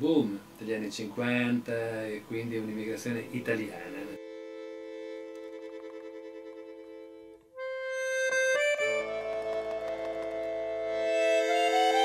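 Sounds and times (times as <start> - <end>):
accordion chords: 3.0 - 12.0
clicks: 5.3 - 6.7, 9.1 - 10.7.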